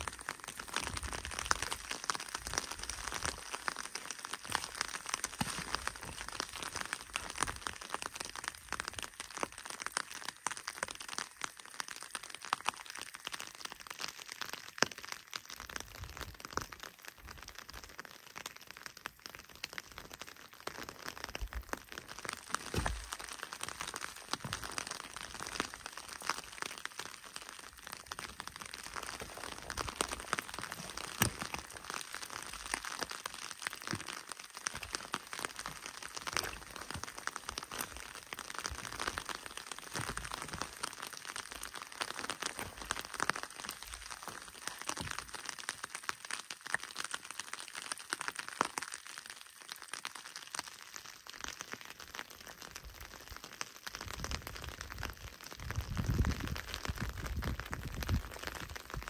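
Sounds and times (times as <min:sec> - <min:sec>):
footsteps crunching on gravel: 0:00.9 - 0:07.7, 0:22.5 - 0:25.8, 0:28.8 - 0:33.1.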